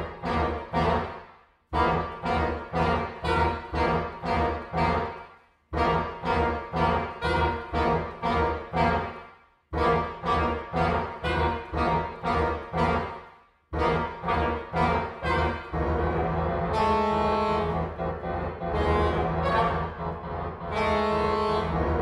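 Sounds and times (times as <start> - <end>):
soprano saxophone duet: 0.0 - 1.2, 1.8 - 5.2, 5.8 - 9.2, 9.8 - 13.2, 13.8 - 22.0.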